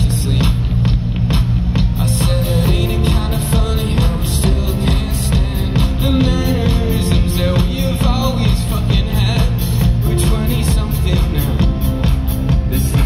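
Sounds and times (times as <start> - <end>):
rock band playing live: 0.0 - 13.0
steady drum beat: 0.0 - 13.0
person singing: 2.0 - 13.0.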